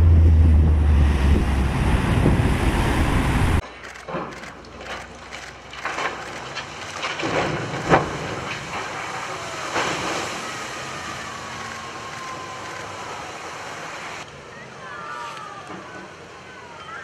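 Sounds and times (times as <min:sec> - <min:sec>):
water splashing: 0:01.0 - 0:14.4.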